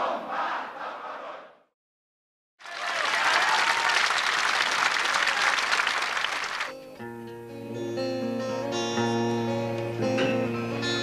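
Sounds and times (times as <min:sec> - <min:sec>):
crowd applauding: 0:02.6 - 0:06.8.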